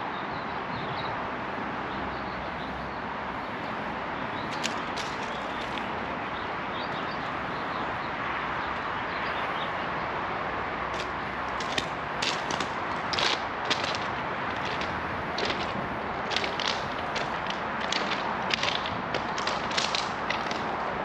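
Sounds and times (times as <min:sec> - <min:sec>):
footsteps on gravel: 0:04.5 - 0:05.9, 0:10.9 - 0:21.0
steady background rush: 0:10.9 - 0:21.0.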